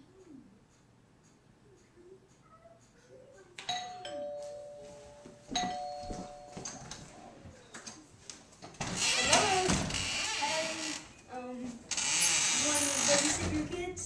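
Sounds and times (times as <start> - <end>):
doorbell ding-dong chime: 3.7 - 6.8.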